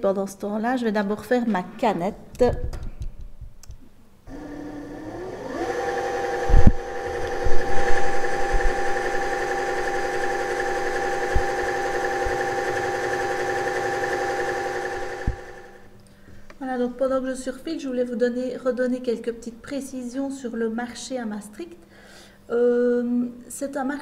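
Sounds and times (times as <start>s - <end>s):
sewing machine motor whine: 4.3s - 15.9s.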